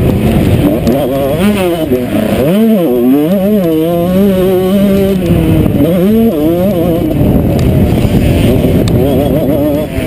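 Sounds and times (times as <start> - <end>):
motocross bike engine revving: 0.0 - 10.0.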